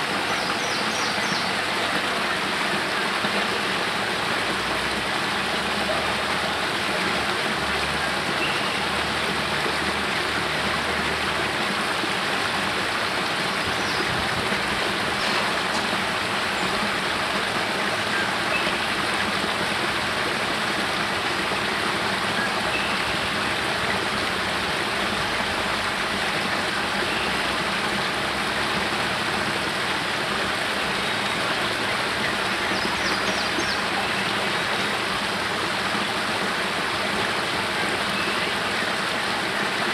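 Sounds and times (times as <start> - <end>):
waterfall splashing over rocks: 0.0 - 39.9.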